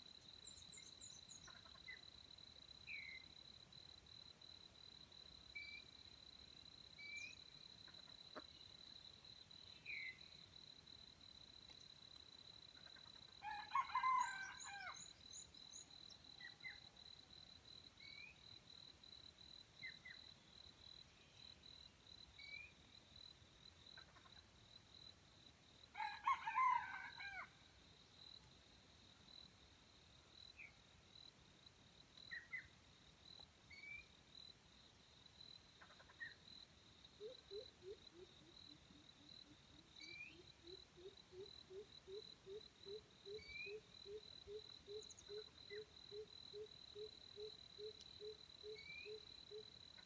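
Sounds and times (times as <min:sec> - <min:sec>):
faint bird chirps: 0:07.0 - 0:08.8, 0:09.6 - 0:10.4, 0:18.0 - 0:18.5, 0:32.3 - 0:32.8, 0:37.2 - 0:50.0
rooster crowing: 0:13.4 - 0:15.0, 0:26.0 - 0:27.5.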